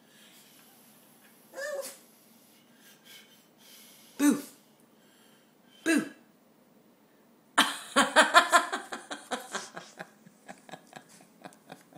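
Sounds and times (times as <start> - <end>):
person laughing: 7.6 - 11.9.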